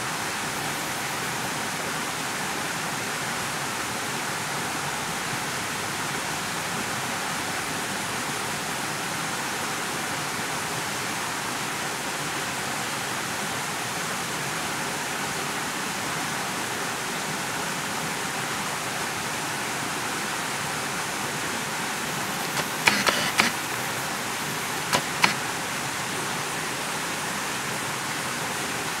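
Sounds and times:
sharp clicks: 0:22.1 - 0:25.4.

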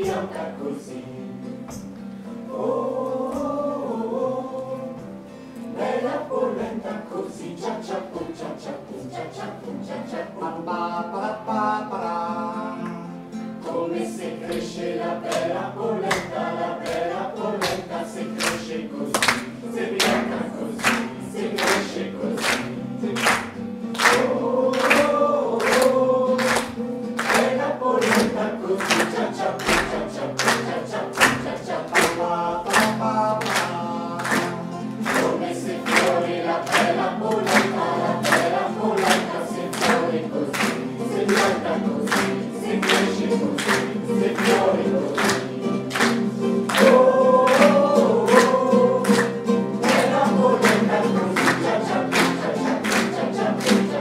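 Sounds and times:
acoustic guitar: 0:00.0 - 0:54.0
group singing in unison: 0:00.0 - 0:54.0
hands clapping in time: 0:14.4 - 0:54.0.

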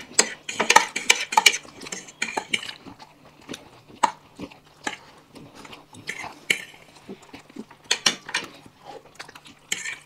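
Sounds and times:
cutlery clinking on plates: 0:00.0 - 0:02.8
people chewing: 0:00.0 - 0:10.0.

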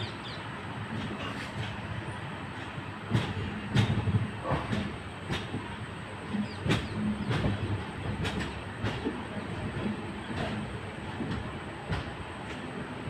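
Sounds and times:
train rumbling at low speed: 0:00.0 - 0:13.0
train wheels knocking over rail joints: 0:02.6 - 0:12.9.

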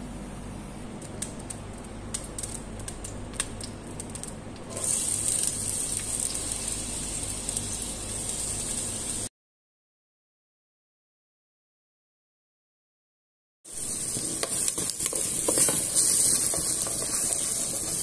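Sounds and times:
oil crackling in a pot: 0:00.9 - 0:09.3, 0:13.7 - 0:18.0
onion sizzling in hot oil: 0:01.0 - 0:09.3, 0:13.7 - 0:18.0.

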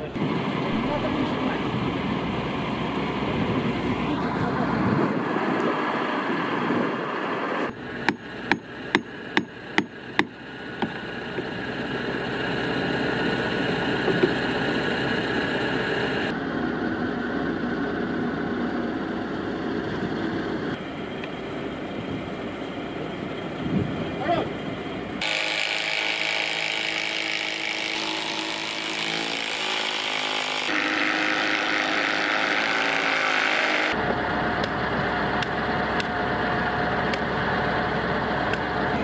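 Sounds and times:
truck engine running: 0:07.2 - 0:25.2, 0:34.0 - 0:39.0
hammer striking: 0:08.0 - 0:11.5.

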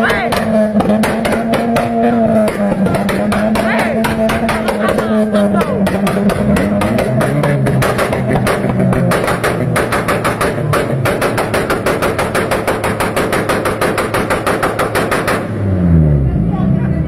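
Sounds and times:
car engine revving: 0:00.0 - 0:17.0
car exhaust backfiring: 0:00.0 - 0:17.0.

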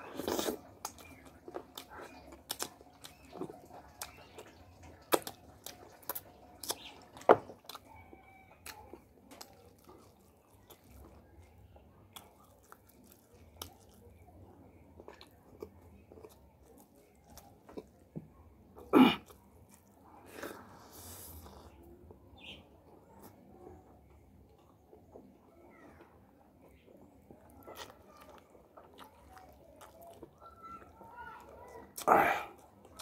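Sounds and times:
person chewing with open mouth: 0:00.0 - 0:14.3, 0:15.0 - 0:18.0, 0:18.8 - 0:22.0, 0:27.2 - 0:31.0, 0:31.8 - 0:33.0.

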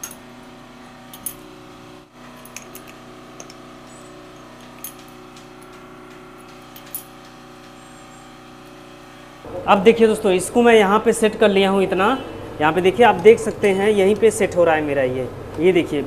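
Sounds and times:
metal clinks of wrench on fittings: 0:00.0 - 0:00.2, 0:02.4 - 0:03.6
steady hum: 0:00.0 - 0:16.0.

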